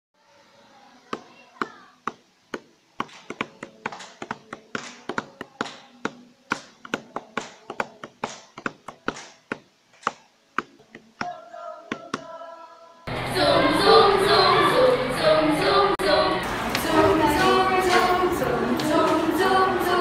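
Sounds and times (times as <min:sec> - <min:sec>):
hand claps and taps in rhythm: 0:02.1 - 0:12.3, 0:17.4 - 0:18.2
voices singing a held note: 0:11.3 - 0:20.0.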